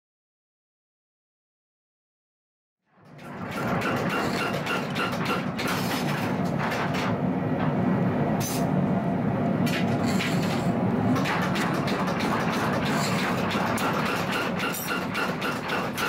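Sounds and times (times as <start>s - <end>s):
knife blade scraping: 4.1s - 5.0s, 9.8s - 10.8s, 12.8s - 15.0s
grinding wheel rumbling: 9.6s - 16.0s.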